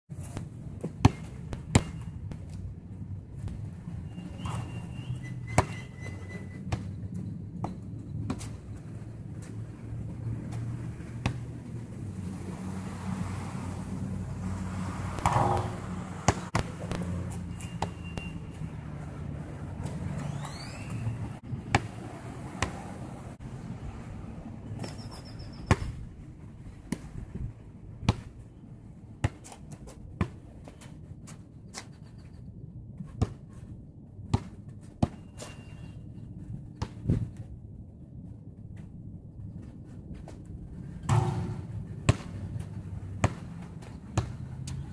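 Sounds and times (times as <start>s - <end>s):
basketball bouncing on court: 0.8s - 2.5s, 10.5s - 11.6s, 15.1s - 18.6s, 41.0s - 44.4s.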